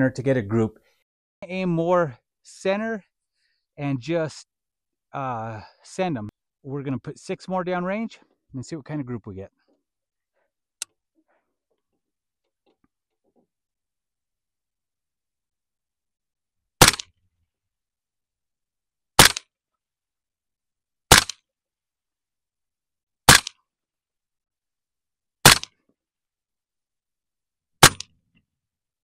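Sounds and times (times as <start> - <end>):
suppressed gunshots: 16.8 - 17.0, 19.2 - 19.4, 21.1 - 21.3, 23.3 - 23.5, 25.4 - 25.7, 27.8 - 28.1.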